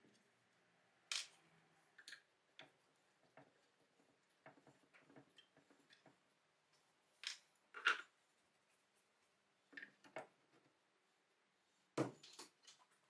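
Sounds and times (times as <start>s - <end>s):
metal parts clicking and knocking on wood: 1.1s - 6.3s, 7.2s - 8.2s.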